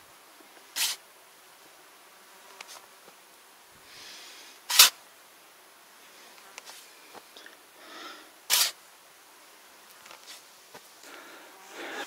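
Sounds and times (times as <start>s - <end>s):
shovel scraping sandy soil: 0.7s - 1.0s, 4.7s - 5.0s, 8.5s - 8.8s, 10.1s - 10.5s.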